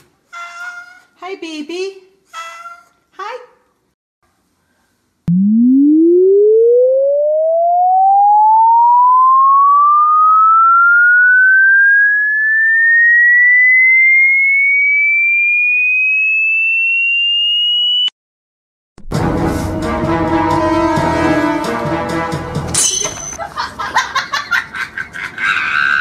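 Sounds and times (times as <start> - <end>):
electronic rising tone: 5.3 - 18.1.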